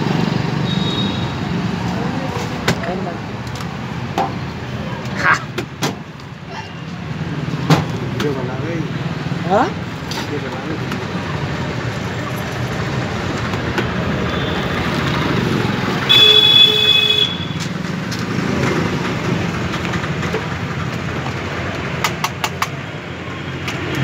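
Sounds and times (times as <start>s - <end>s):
road traffic noise: 0.0s - 24.0s
vehicle horn honking: 16.1s - 17.6s.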